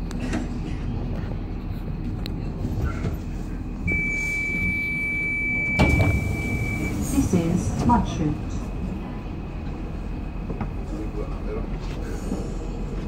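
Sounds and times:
train low rumble: 0:00.0 - 0:13.0
high warning tone: 0:03.9 - 0:07.3
sliding doors shutting clunk: 0:05.6 - 0:07.0.

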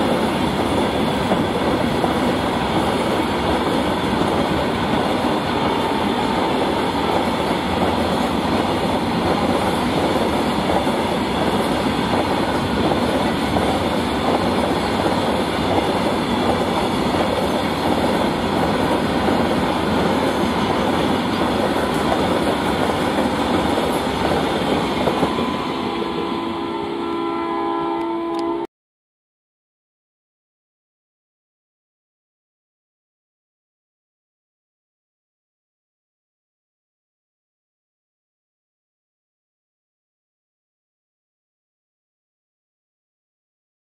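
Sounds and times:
train wheels rumbling on rails: 0:00.0 - 0:27.0.

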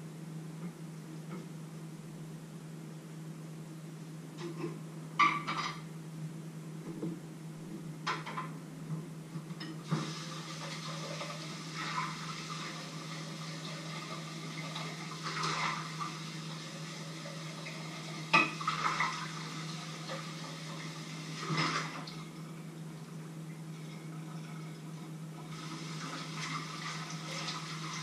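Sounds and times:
steady low hum: 0:00.0 - 0:28.0
dishes and cutlery clinking: 0:04.4 - 0:05.9
tap water running: 0:09.8 - 0:28.0.

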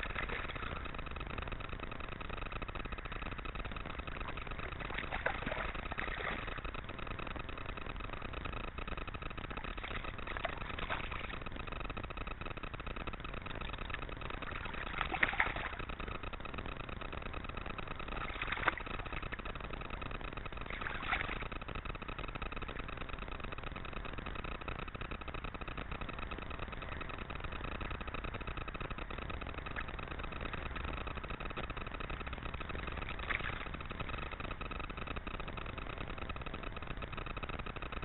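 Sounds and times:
water splashes: 0:00.0 - 0:01.0, 0:04.0 - 0:06.6, 0:09.6 - 0:11.4, 0:14.4 - 0:15.9, 0:18.2 - 0:19.4, 0:20.7 - 0:21.4, 0:33.0 - 0:33.8
steady hiss with faint whine: 0:00.0 - 0:38.0.

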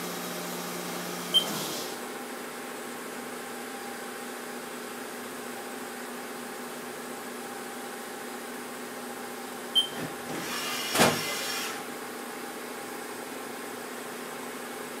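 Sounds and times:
tool turret whirring: 0:09.9 - 0:11.9.

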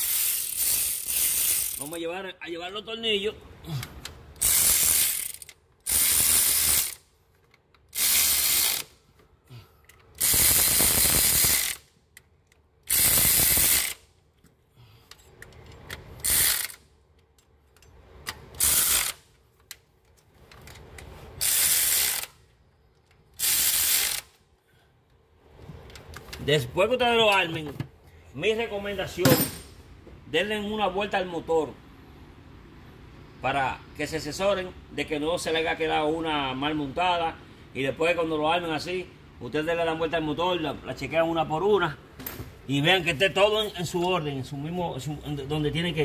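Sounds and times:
power ratchet bursts: 0:00.0 - 0:02.0, 0:04.3 - 0:07.0, 0:07.9 - 0:09.0, 0:10.1 - 0:11.9, 0:12.8 - 0:14.1, 0:16.2 - 0:16.8, 0:18.5 - 0:19.2, 0:21.4 - 0:22.4, 0:23.4 - 0:24.4.

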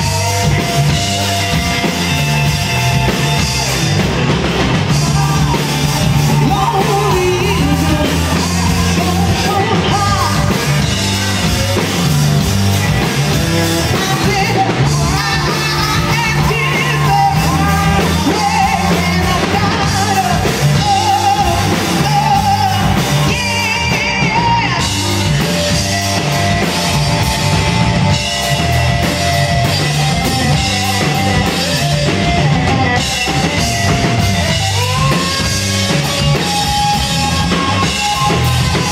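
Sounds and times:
drum kit: 0:00.0 - 0:38.9
electric guitars: 0:00.0 - 0:38.9
woman singing: 0:04.9 - 0:11.0, 0:13.8 - 0:25.4.

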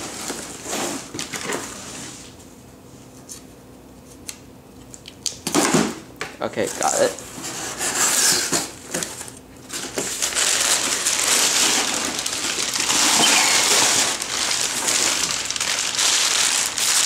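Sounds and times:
packing paper crinkling: 0:09.0 - 0:17.0.

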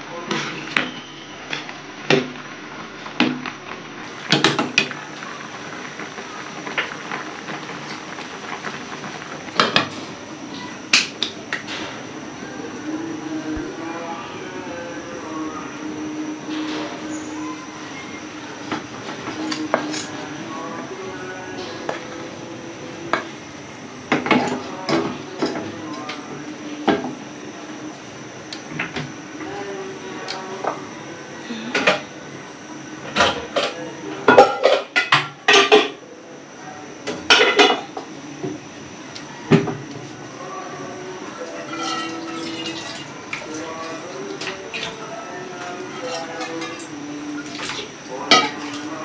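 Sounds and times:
food simmering hiss: 0:00.1 - 0:49.0
utensil clinking against pot: 0:45.6 - 0:48.9.

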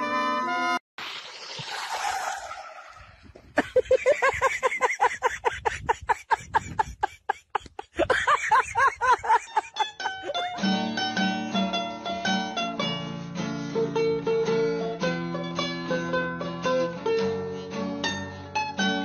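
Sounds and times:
hissing rush: 0:01.0 - 0:04.9
high-pitched laughter: 0:03.5 - 0:10.6.

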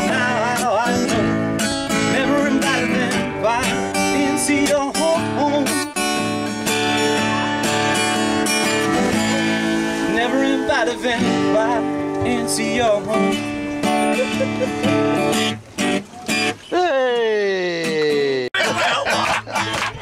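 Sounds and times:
man singing: 0:00.0 - 0:06.0, 0:06.6 - 0:13.6
acoustic guitar strumming: 0:00.0 - 0:20.0.

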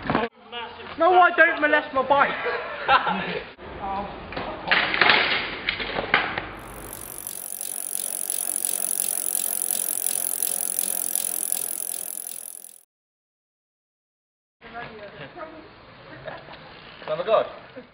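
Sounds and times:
bicycle freewheel ticking: 0:06.6 - 0:12.8.

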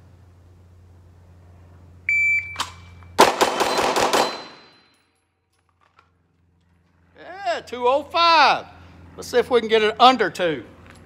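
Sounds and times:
shot timer beep: 0:02.1 - 0:02.7
rapid pistol shots: 0:03.2 - 0:04.7.

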